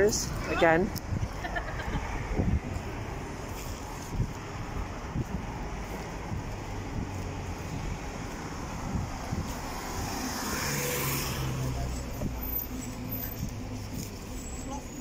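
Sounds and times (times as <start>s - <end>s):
street traffic noise: 0.0s - 15.0s
vehicle passing by: 1.7s - 14.8s.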